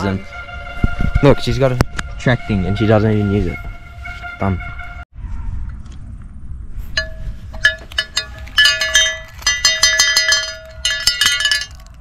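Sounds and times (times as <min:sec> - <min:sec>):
cowbell clanking and ringing: 0:07.0 - 0:12.0.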